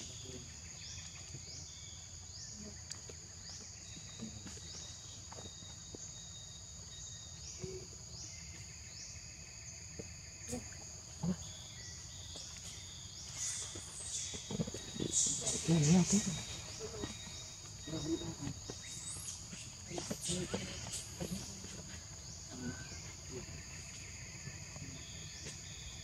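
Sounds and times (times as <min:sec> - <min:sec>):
insect chorus: 0:00.0 - 0:26.0.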